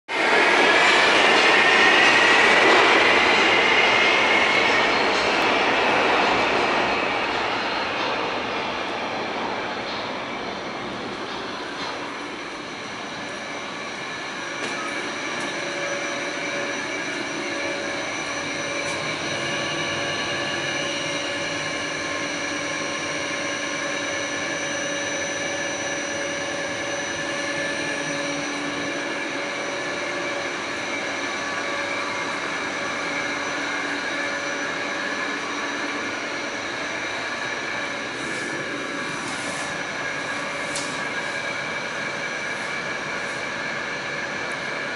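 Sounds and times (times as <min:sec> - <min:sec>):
subway car rumble: 0:00.1 - 0:44.9
steady high tones: 0:10.8 - 0:44.4.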